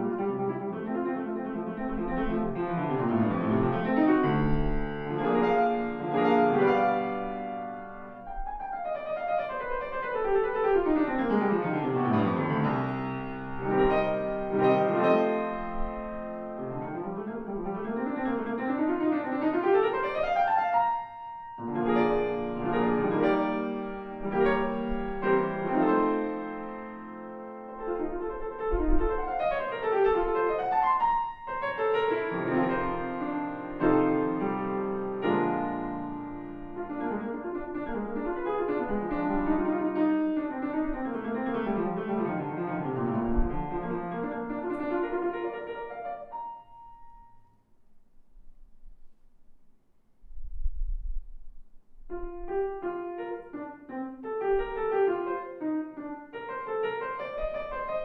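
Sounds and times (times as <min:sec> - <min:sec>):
grand piano running scales: 0:00.0 - 0:47.5, 0:52.1 - 0:58.0.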